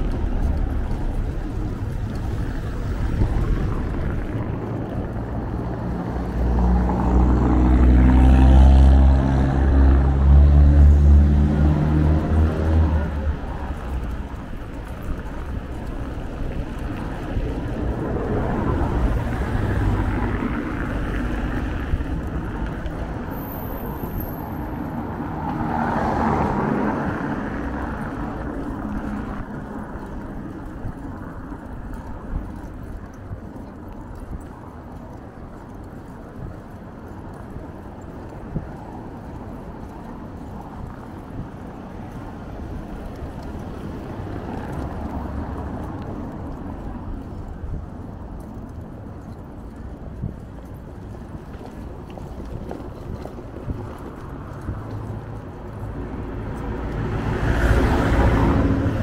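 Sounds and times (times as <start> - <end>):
vehicle engine passing close: 0.0 - 14.4
cars passing road noise: 0.0 - 59.0.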